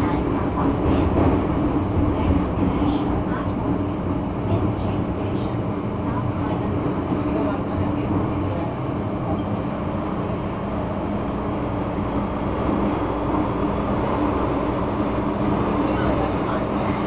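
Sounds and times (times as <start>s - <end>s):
metro wheels rumbling on rail: 0.0s - 17.0s.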